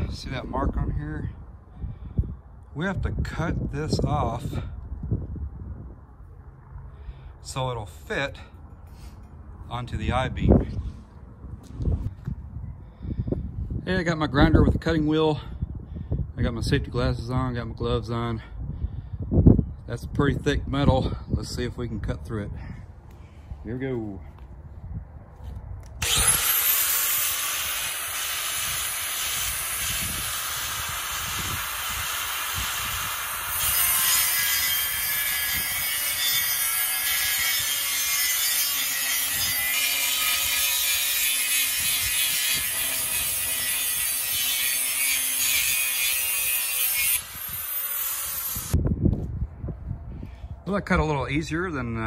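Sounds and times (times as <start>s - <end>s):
grinder motor winding down: 26.0s - 34.1s
angle grinder cutting metal: 26.0s - 48.8s.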